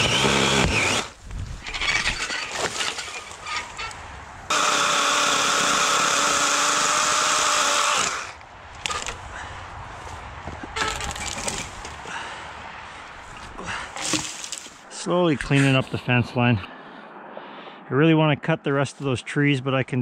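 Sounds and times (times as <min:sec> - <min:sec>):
electric chainsaw whirring: 0:00.0 - 0:09.2
brush and twigs crackling: 0:01.1 - 0:04.5, 0:08.4 - 0:14.9.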